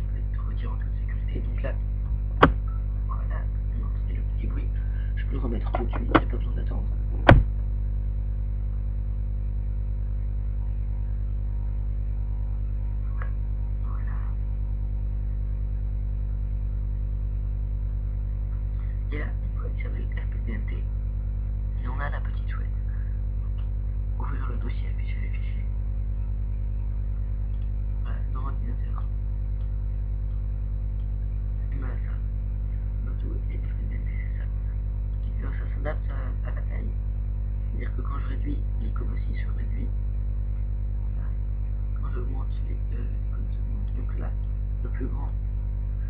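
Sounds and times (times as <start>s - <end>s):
faint low voice: 0.0s - 1.8s, 2.6s - 6.9s, 10.5s - 14.4s, 18.5s - 20.9s, 21.8s - 25.7s, 28.0s - 29.1s, 31.6s - 37.0s, 37.7s - 39.9s, 41.0s - 41.4s, 42.0s - 45.4s
electrical mains hum: 0.0s - 46.0s.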